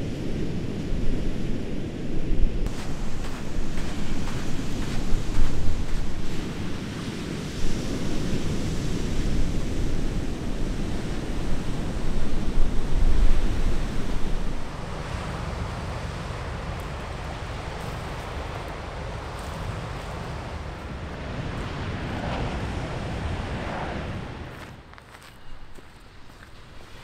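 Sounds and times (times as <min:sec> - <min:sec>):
surf washing: 0:00.0 - 0:24.8
wind buffeting microphone: 0:00.0 - 0:27.0.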